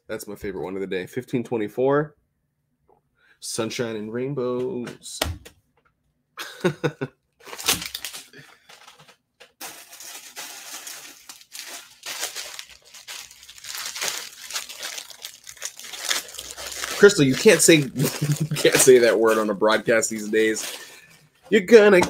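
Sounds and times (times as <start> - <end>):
plastic bag crinkling: 7.4 - 21.7.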